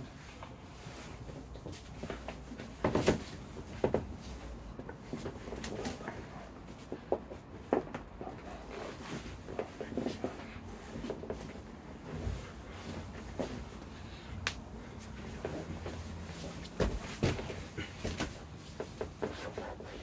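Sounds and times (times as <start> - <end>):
bodies thumping on floor mats: 1.6 - 6.2, 14.6 - 19.7.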